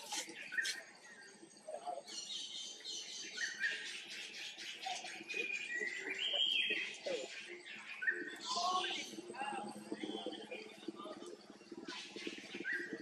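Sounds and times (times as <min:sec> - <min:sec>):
birds chirping: 0:00.0 - 0:13.0.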